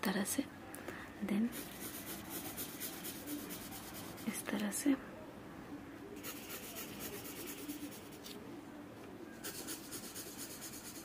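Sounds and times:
pencil scratching on paper: 0:01.5 - 0:04.4, 0:06.2 - 0:08.3, 0:09.4 - 0:11.0.

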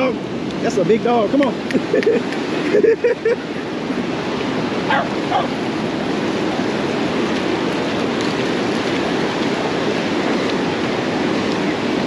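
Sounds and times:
surf washing over sand: 0:00.0 - 0:12.0.

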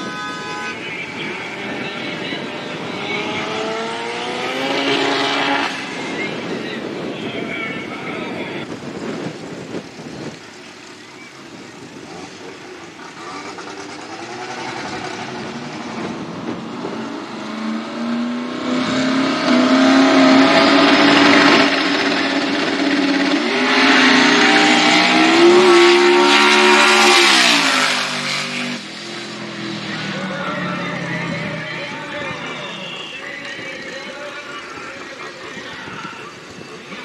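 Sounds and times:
drag car engine revving: 0:00.0 - 0:07.1, 0:11.9 - 0:32.6.

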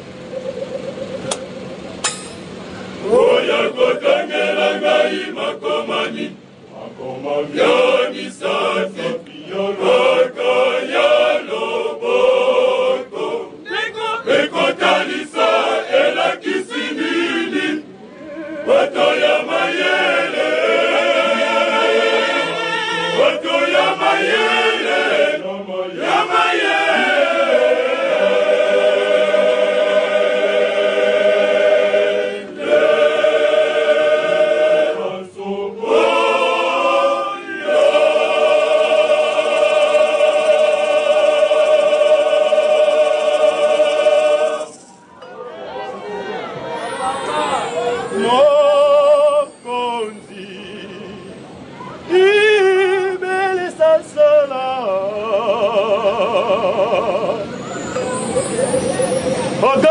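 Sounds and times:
male choir singing: 0:02.9 - 0:45.6, 0:46.7 - 0:51.4, 0:52.1 - 0:59.9.

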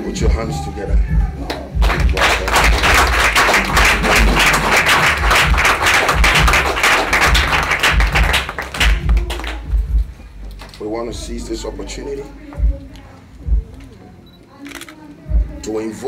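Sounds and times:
small group clapping: 0:01.4 - 0:10.8.

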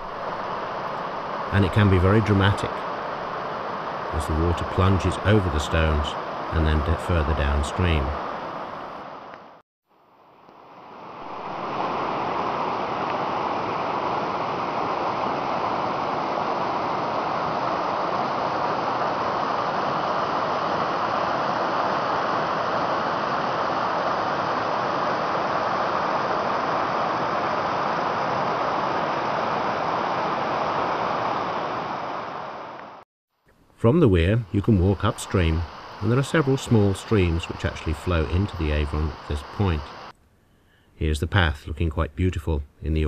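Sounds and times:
river rushing over weir: 0:00.0 - 0:09.3, 0:10.7 - 0:33.0.

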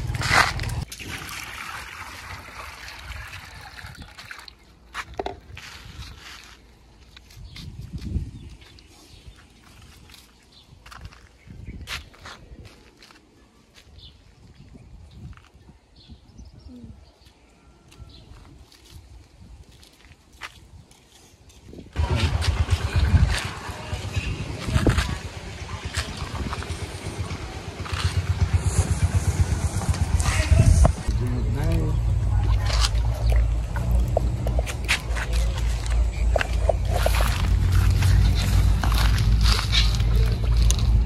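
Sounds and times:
water trickling and sloshing: 0:00.2 - 0:06.1, 0:31.1 - 0:41.0
low uneven rumble: 0:22.0 - 0:41.0.

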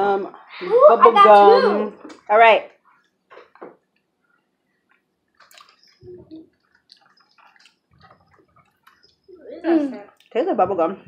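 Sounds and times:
lip smacks and tongue clicks: 0:04.9 - 0:09.3.

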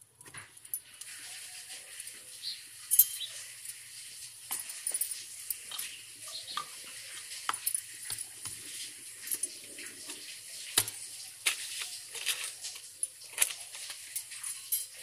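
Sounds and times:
bangles clicking on steel plate: 0:02.9 - 0:03.8.

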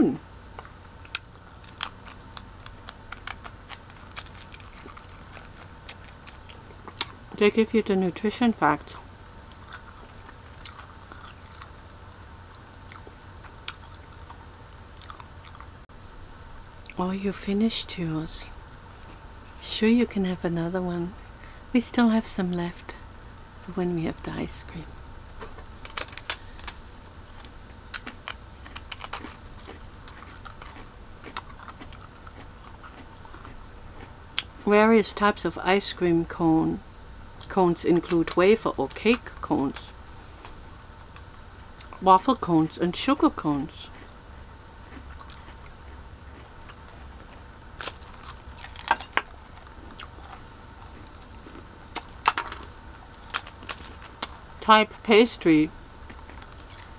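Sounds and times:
low steady hum: 0:00.0 - 0:56.9
crunching waffle cone: 0:01.0 - 0:07.2, 0:25.8 - 0:34.5, 0:44.9 - 0:54.4.

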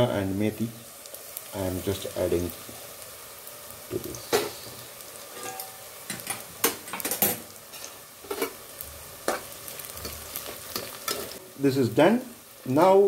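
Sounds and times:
onions sizzling in oil: 0:00.0 - 0:13.0
spoon scraping and knocking a pan: 0:05.3 - 0:08.6.

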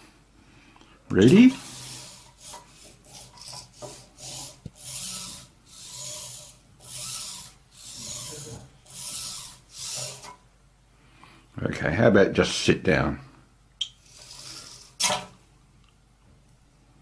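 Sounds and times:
servo motors whirring: 0:01.6 - 0:10.3.

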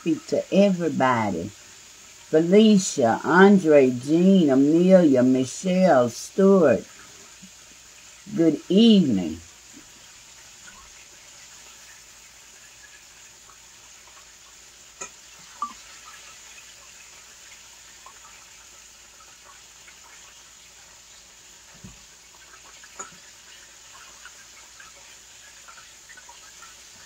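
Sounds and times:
food sizzling in oil: 0:00.0 - 0:27.0.

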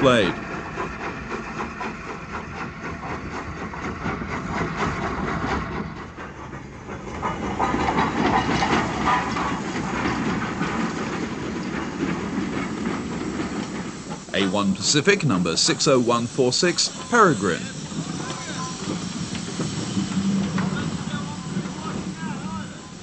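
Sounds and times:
steam hissing: 0:00.0 - 0:23.0
clanks and rattles: 0:00.5 - 0:14.3.

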